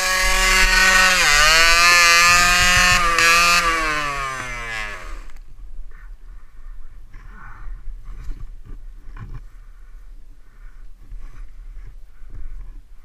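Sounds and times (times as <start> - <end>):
two-stroke engine revving: 0.0 - 5.4.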